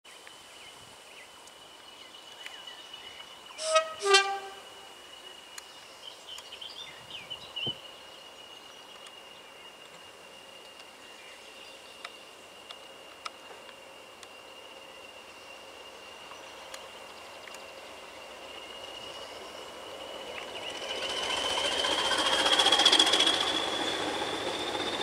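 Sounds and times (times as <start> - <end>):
two-tone locomotive horn: 3.6 - 4.9.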